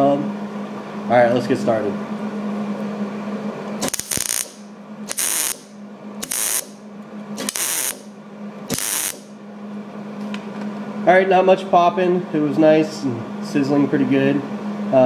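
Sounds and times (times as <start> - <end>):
welder sizzling: 3.8 - 6.7, 7.4 - 8.1, 8.7 - 9.3.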